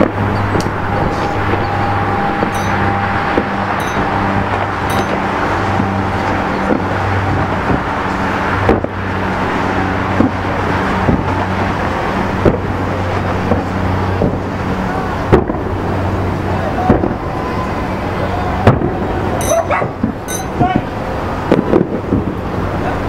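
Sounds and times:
low hum: 0.1s - 6.1s.

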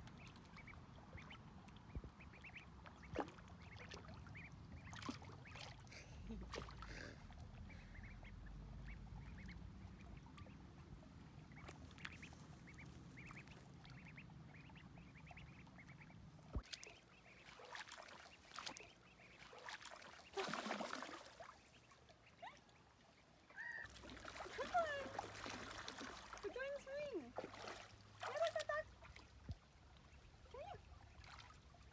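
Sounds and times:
ducklings peeping: 0.1s - 6.0s, 7.3s - 20.4s, 21.4s - 23.9s
water splashing: 2.3s - 10.6s, 11.4s - 22.0s, 23.9s - 31.9s
low steady rumble: 5.8s - 16.6s.

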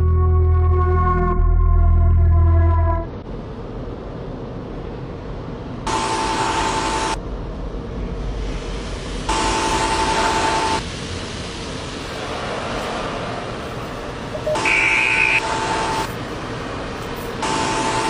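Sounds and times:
low rumble: 0.0s - 5.8s
car horn honking: 5.9s - 7.2s, 9.3s - 10.8s, 14.4s - 16.1s.

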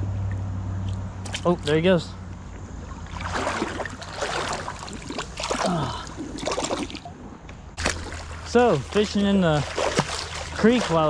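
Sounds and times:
creek water splashing: 0.9s - 11.0s
low water rush: 1.2s - 11.0s.

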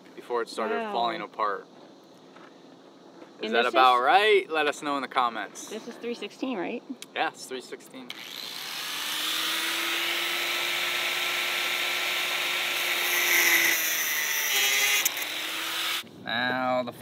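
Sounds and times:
angle grinder cutting wire: 8.1s - 16.0s.

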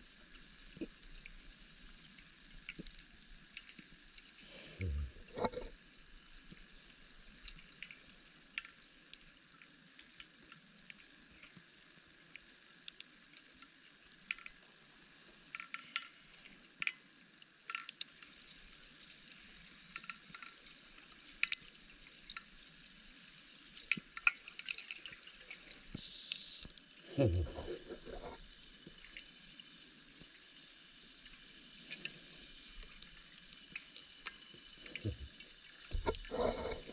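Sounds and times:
underwater clicks and crackles: 0.0s - 36.9s
underwater hiss: 25.5s - 28.8s.

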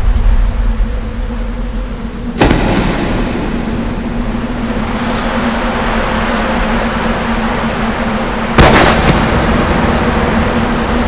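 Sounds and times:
sudden dramatic hit: 0.0s - 6.0s, 8.6s - 11.0s.

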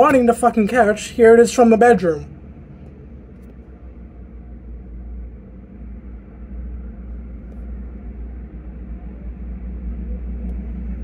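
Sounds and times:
diesel locomotives rumbling: 0.0s - 11.0s.

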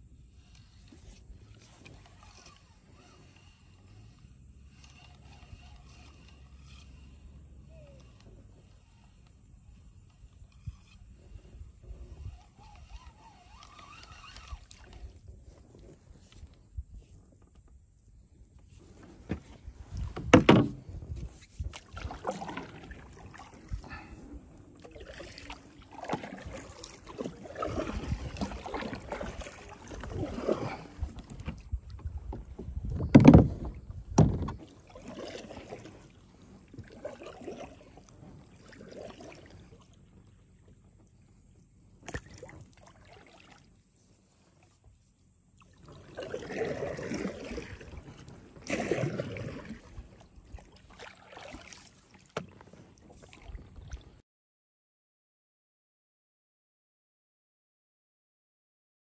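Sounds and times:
kayak thump: 19.0s - 24.1s, 27.6s - 35.8s, 51.6s - 53.4s
knocks on plastic kayak: 20.2s - 20.8s
water splashes: 21.5s - 31.7s, 34.4s - 40.0s, 42.0s - 43.8s, 45.6s - 54.2s.

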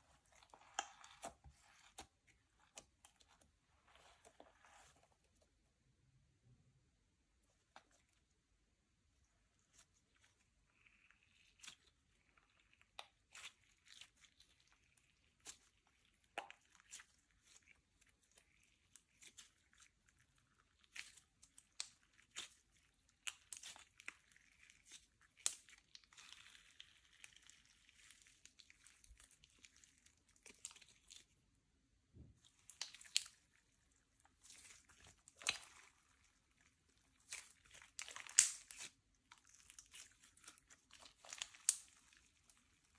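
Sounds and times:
slime crackling and clicking: 37.2s - 42.6s.

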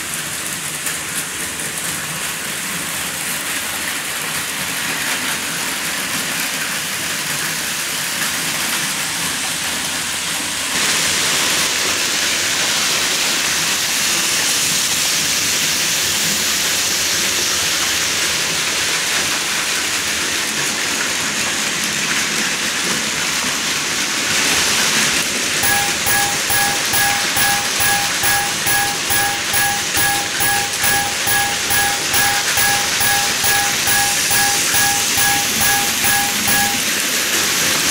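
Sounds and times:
level-crossing warning bell: 25.5s - 37.2s.

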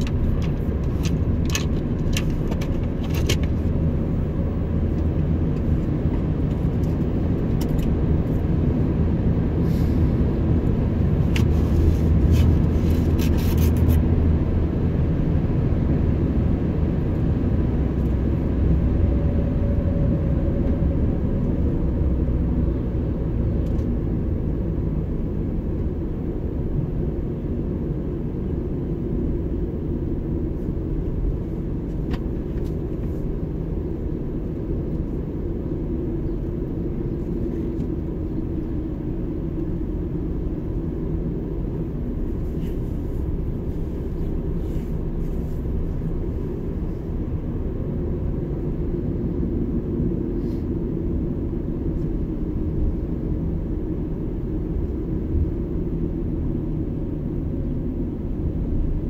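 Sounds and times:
car engine and tyres rumbling: 0.0s - 59.0s.

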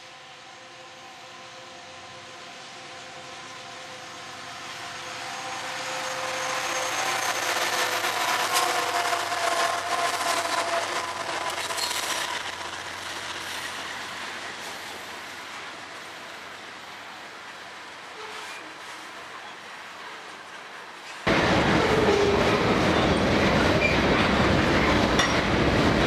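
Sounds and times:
diesel locomotives passing: 0.0s - 26.0s
train wheels on rails: 0.0s - 26.0s.

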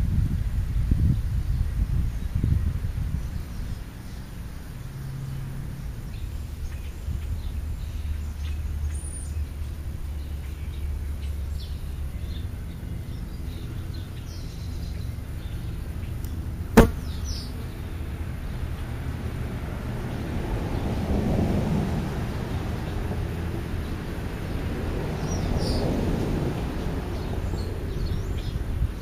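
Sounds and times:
low outdoor rumble: 0.0s - 29.0s
songbird chirps: 1.0s - 19.1s.

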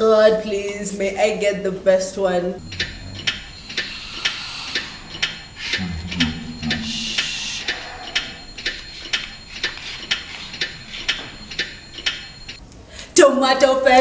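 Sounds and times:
clock ticking: 0.3s - 12.8s
low murmur: 2.5s - 4.2s, 5.7s - 7.8s.

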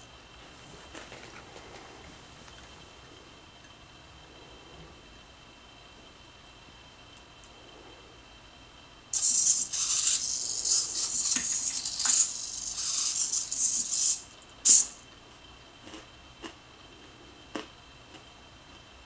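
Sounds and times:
servos whirring and rattling: 9.2s - 15.0s.

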